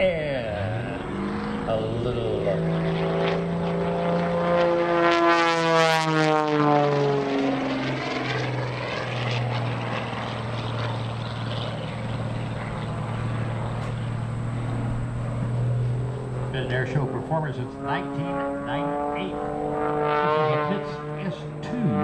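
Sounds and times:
propeller plane engine droning: 0.0s - 22.0s.

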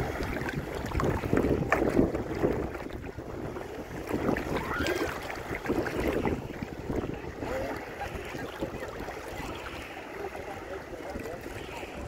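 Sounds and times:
sea water sloshing and splashing: 0.0s - 12.0s
wind buffeting microphone: 0.0s - 12.0s.

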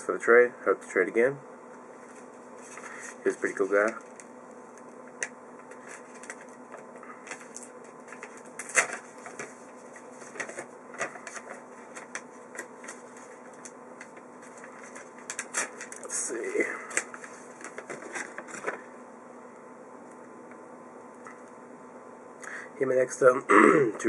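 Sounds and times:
faint steady hum: 0.0s - 24.0s
cards clicking and rustling: 5.2s - 16.2s.

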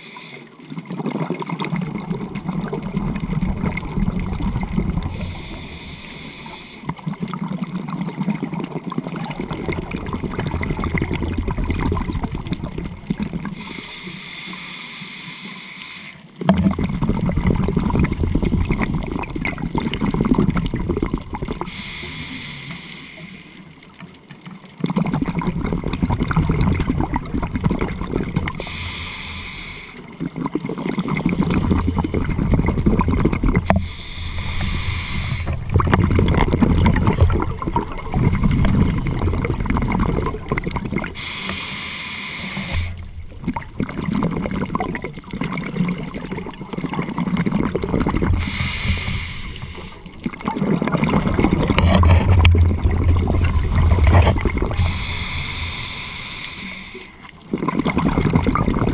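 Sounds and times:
regulator inhalation hiss: 0.0s - 0.6s, 5.1s - 6.9s, 13.6s - 16.3s, 21.7s - 23.7s, 28.5s - 30.1s, 33.7s - 35.7s, 41.2s - 43.1s, 48.4s - 50.1s, 54.8s - 57.3s
exhaled bubbles rumbling: 0.6s - 13.8s, 16.4s - 22.4s, 23.8s - 41.8s, 42.4s - 58.9s.

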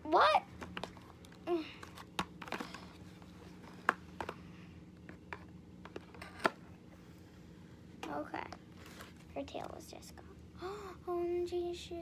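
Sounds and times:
cardboard and plastic rustling: 0.5s - 6.7s.

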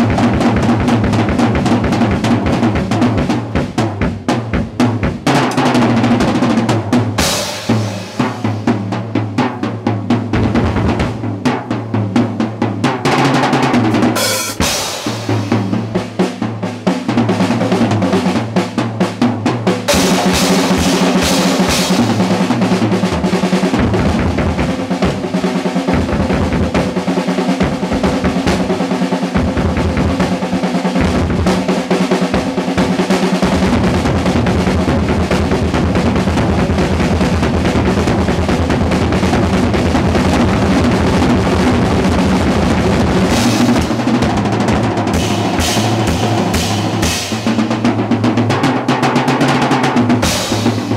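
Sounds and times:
drum kit solo: 0.0s - 50.9s
cymbal crashes: 7.2s - 8.8s, 13.9s - 16.2s, 45.1s - 47.9s.

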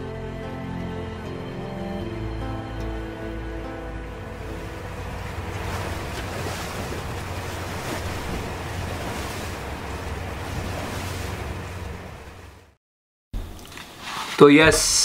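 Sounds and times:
low rumble: 2.0s - 12.8s
sea water washing: 3.7s - 12.8s
wind buffeting microphone: 4.4s - 12.5s.

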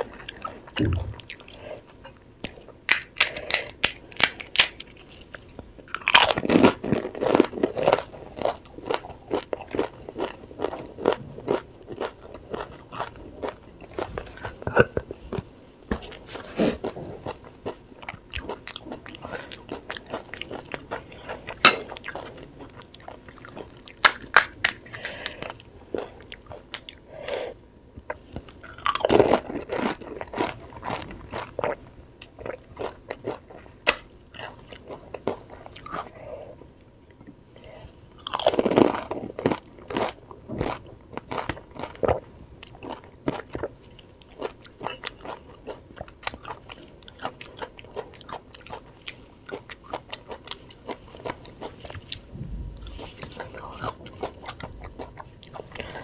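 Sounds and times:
crunching fried snacks: 2.5s - 14.1s, 17.6s - 27.0s, 28.7s - 36.1s, 38.2s - 52.0s.

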